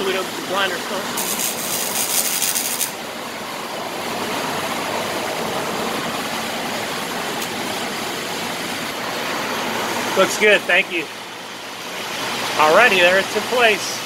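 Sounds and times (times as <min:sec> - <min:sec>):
steady rushing shop noise: 0:00.0 - 0:09.0
welding arc crackling and hissing: 0:00.9 - 0:03.0.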